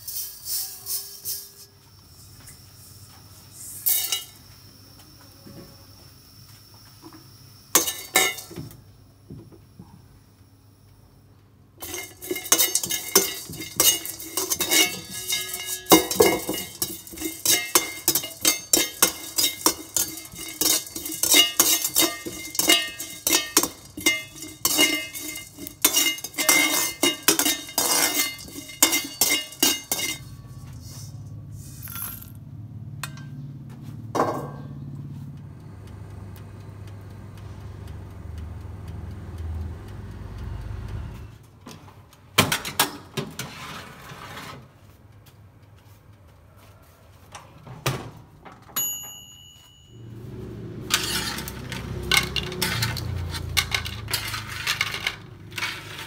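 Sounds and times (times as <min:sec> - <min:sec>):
electric oven humming: 0:00.0 - 0:42.4, 0:48.2 - 0:56.0
metal skimmer clinking in a wok: 0:03.8 - 0:04.4, 0:07.8 - 0:08.6, 0:11.8 - 0:31.4, 0:48.8 - 0:56.0.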